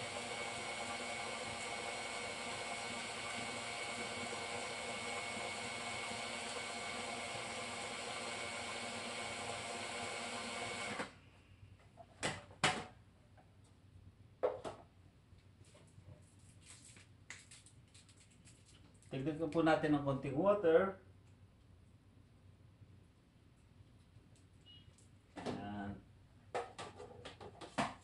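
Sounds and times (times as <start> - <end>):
food processor motor whining: 0.0 - 11.1.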